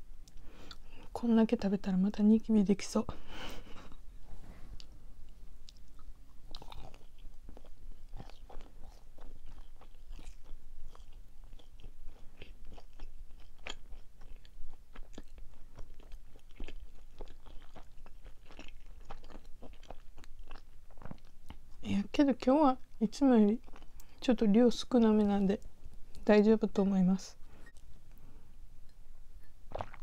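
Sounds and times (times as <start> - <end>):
crunchy chewing clicks: 5.3 - 21.8
wet mouth sounds: 28.8 - 30.0.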